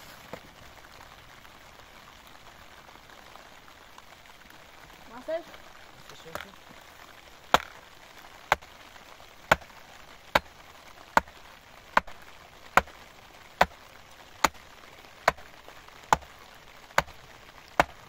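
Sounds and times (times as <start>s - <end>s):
hatchet chopping wooden plank: 7.5s - 7.8s, 8.5s - 8.7s, 9.5s - 10.5s, 11.1s - 13.0s, 13.6s - 13.8s, 14.4s - 14.6s, 15.2s - 15.5s, 16.1s - 18.0s.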